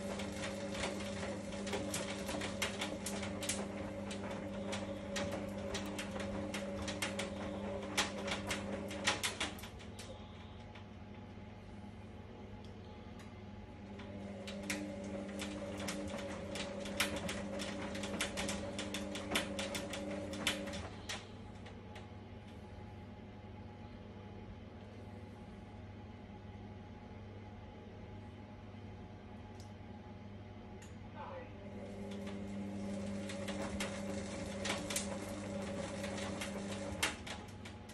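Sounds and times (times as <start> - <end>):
clicks and rattles: 0.0 - 11.2, 14.5 - 22.0
washer-dryer motor humming: 0.0 - 37.9.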